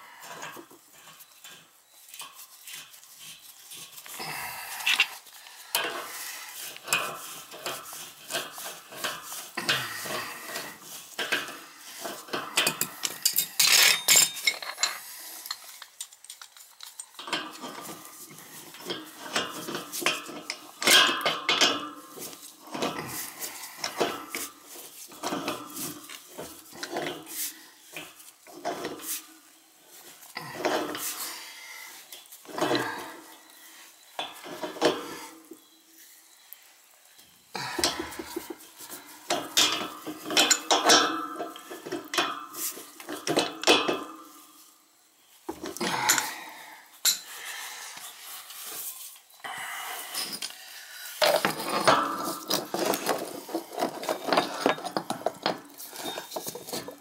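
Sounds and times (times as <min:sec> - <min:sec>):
wrench clinking and scraping on metal: 0:00.2 - 0:04.2, 0:04.8 - 0:31.3, 0:37.6 - 0:44.8, 0:47.0 - 0:47.3, 0:50.1 - 0:50.6, 0:51.2 - 0:57.0.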